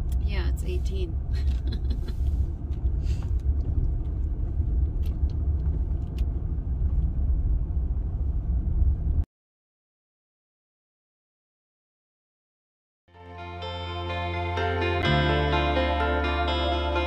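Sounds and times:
vehicle rumble inside cab: 0.0s - 9.3s.

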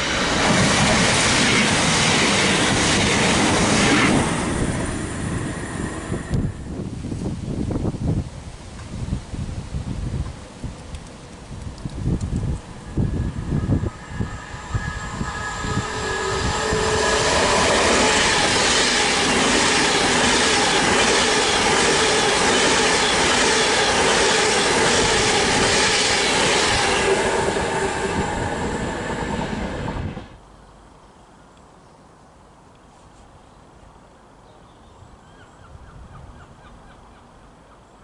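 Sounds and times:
train wheels rushing on rail: 0.0s - 8.0s, 10.1s - 30.4s
wind buffeting microphone: 0.4s - 21.0s
steady tones: 12.4s - 20.9s.

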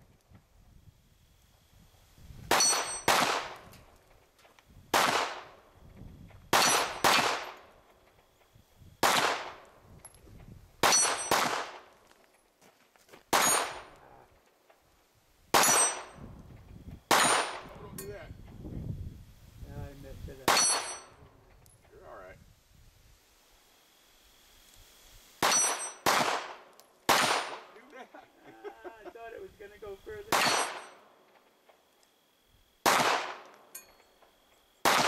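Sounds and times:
steel target clanging: 2.5s - 3.2s, 10.8s - 11.4s, 15.6s - 16.2s, 20.4s - 21.2s, 25.4s - 26.1s, 30.3s - 31.0s, 33.6s - 34.3s
handgun shots: 5.0s - 5.4s, 6.6s - 7.6s, 10.8s - 11.8s, 17.1s - 17.7s, 25.4s - 27.7s, 30.3s - 30.9s, 32.8s - 33.6s.

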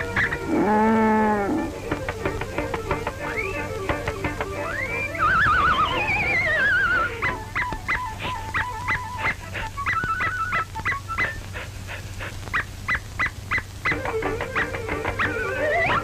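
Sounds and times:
short staccato notes: 0.0s - 5.3s, 13.9s - 16.0s.

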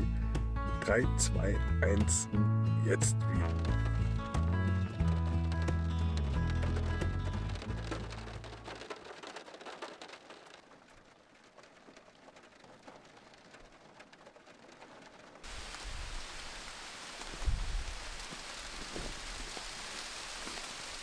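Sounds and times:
low thumps: 2.0s - 8.7s
rain on a car roof: 3.0s - 21.0s.

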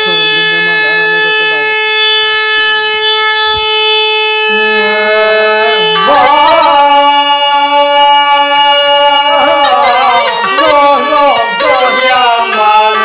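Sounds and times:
bagpipe playing: 0.0s - 13.0s.

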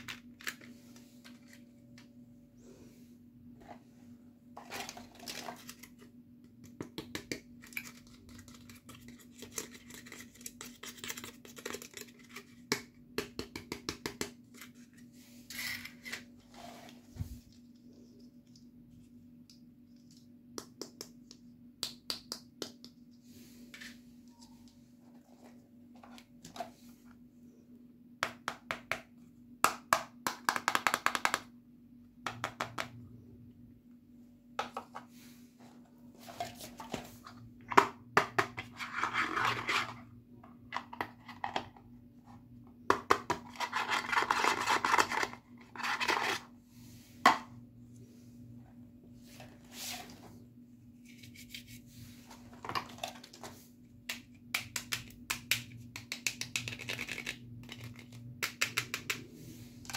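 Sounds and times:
faint steady hum: 0.0s - 59.9s
plastic toys clicking and tapping: 54.1s - 59.3s.

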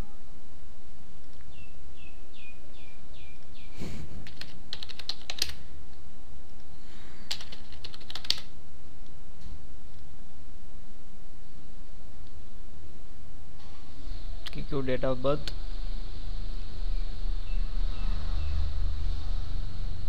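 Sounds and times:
steady low hum: 0.0s - 20.0s
typing on computer keyboard: 4.2s - 5.6s, 7.3s - 8.5s.

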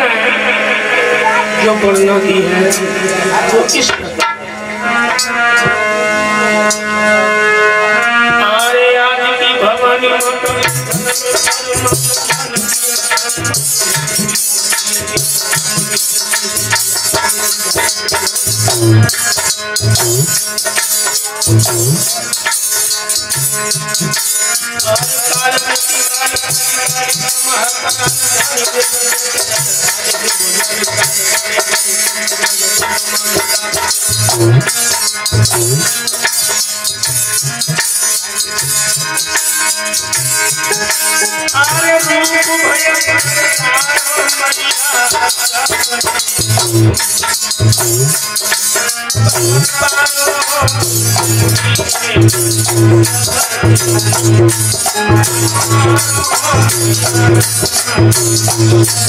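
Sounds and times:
harmonium chords: 0.0s - 59.0s
man singing: 8.2s - 20.8s, 24.1s - 35.0s, 41.1s - 59.0s
jangling hand percussion: 10.2s - 59.0s.

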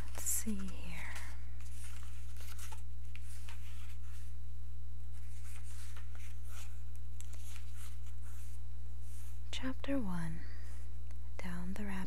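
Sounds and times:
paper rustling: 0.0s - 4.3s, 5.1s - 9.4s
steady low hum: 0.0s - 12.0s.

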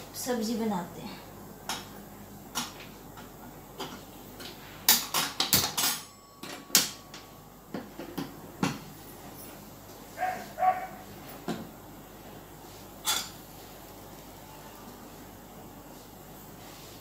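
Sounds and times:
kitchen utensils clinking: 13.0s - 13.4s.

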